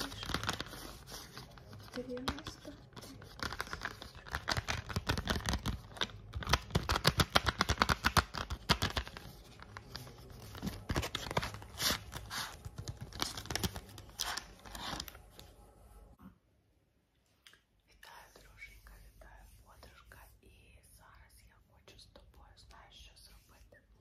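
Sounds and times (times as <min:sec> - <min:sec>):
wrapper tearing and crinkling: 0:00.0 - 0:15.3.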